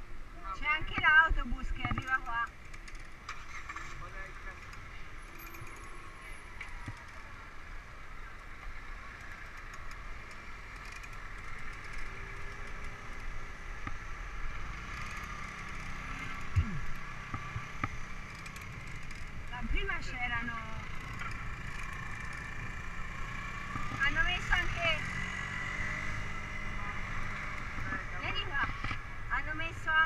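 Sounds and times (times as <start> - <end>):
street traffic hum: 0.0 - 30.0.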